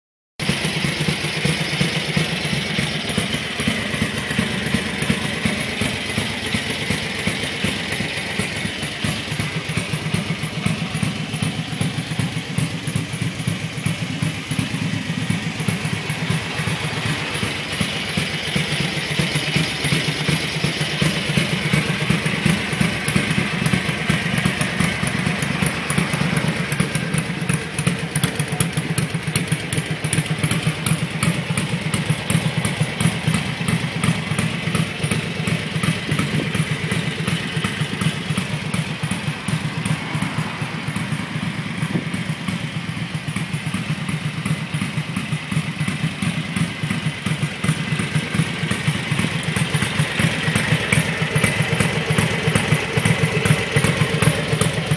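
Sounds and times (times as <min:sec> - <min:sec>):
motorcycle engine idling: 0:00.4 - 0:54.9.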